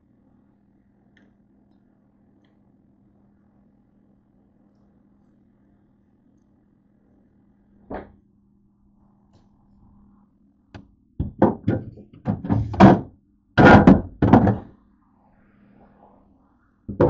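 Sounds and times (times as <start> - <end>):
faint steady hum: 0.0 - 17.0
bottles knocking on fridge shelves: 11.2 - 14.7.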